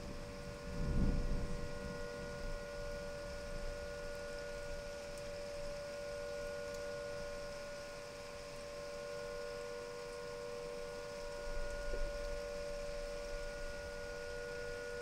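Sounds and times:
siren two-note chord: 0:08.8 - 0:15.0.

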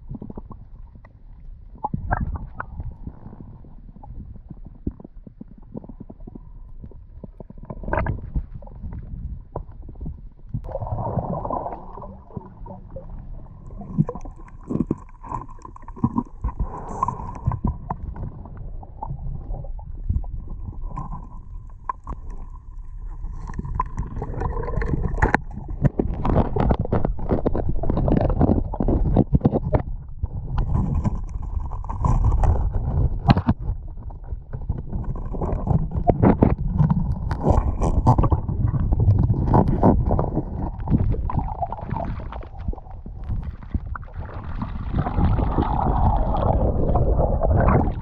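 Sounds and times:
muffled underwater rumble: 0:00.0 - 0:48.0
clicks and crackles: 0:01.8 - 0:10.8, 0:11.4 - 0:46.7
knocks and scrapes: 0:23.2 - 0:45.5.

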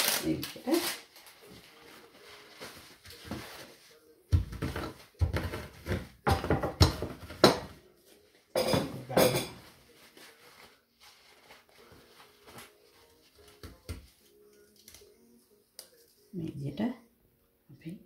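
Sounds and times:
rolling pin crushing biscuits: 0:04.3 - 0:07.7.

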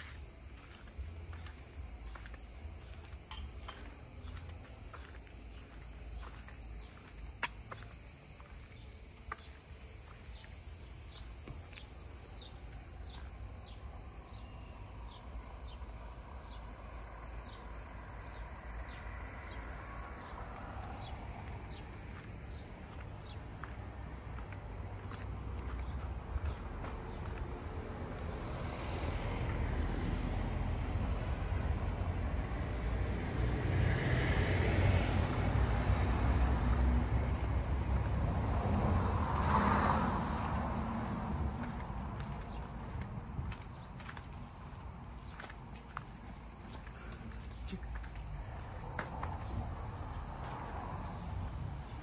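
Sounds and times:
footsteps on paving: 0:00.0 - 0:13.8, 0:20.2 - 0:28.5, 0:40.3 - 0:50.7
cicadas buzzing: 0:00.0 - 0:52.0.

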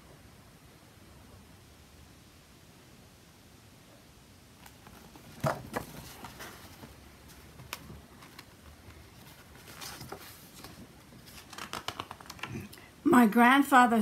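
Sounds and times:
book being handled: 0:04.6 - 0:12.7
page turning: 0:04.6 - 0:12.7.

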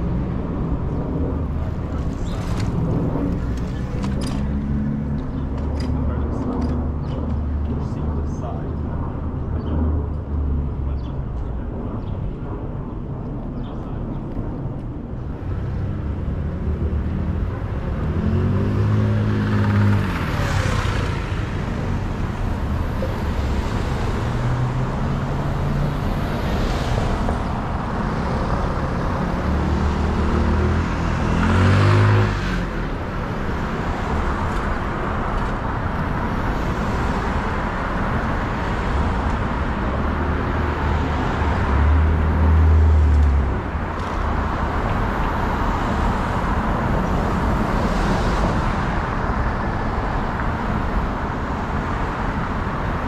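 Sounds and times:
street traffic rushing: 0:00.0 - 0:53.0
vehicle passing loudly: 0:15.7 - 0:50.3.

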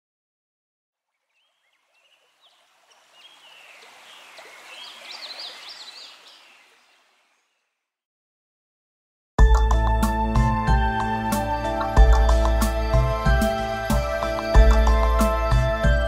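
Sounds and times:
stream water babbling: 0:01.0 - 0:07.6
small birds chirping: 0:01.1 - 0:07.8.

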